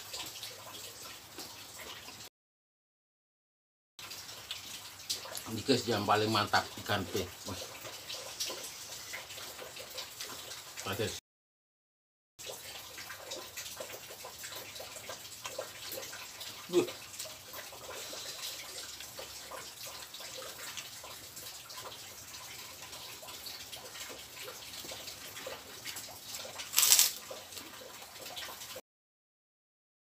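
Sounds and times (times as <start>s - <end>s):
person chewing wetly: 13.0s - 28.5s
lip smacks and mouth clicks: 24.8s - 27.8s
cracker crunch: 26.3s - 27.7s.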